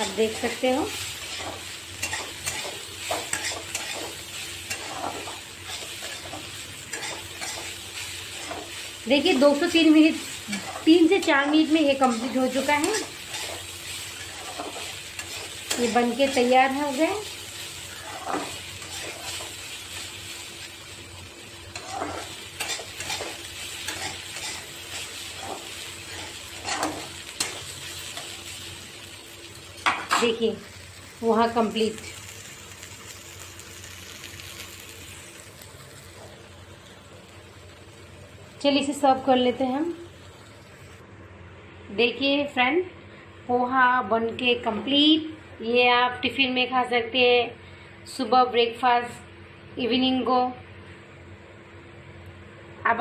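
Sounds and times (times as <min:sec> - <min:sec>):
spatula scraping a pan: 0:00.0 - 0:20.0, 0:21.7 - 0:28.4
light frying sizzle: 0:00.0 - 0:53.0.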